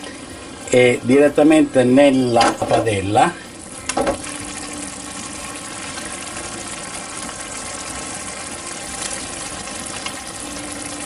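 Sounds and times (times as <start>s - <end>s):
water boiling in pot: 0.0s - 11.0s
water streaming into pot: 2.9s - 11.0s.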